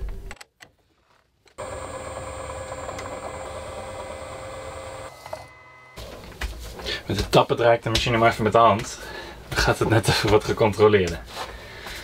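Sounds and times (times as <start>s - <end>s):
metal lathe whining: 1.6s - 6.1s.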